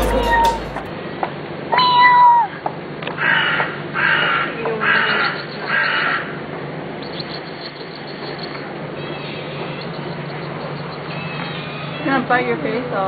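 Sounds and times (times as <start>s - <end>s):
short high tone: 0.0s - 0.9s
crow cawing: 3.2s - 6.4s.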